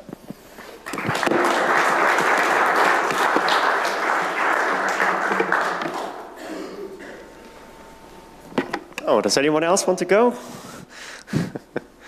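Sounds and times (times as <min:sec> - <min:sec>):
audience applauding: 0:00.6 - 0:06.4.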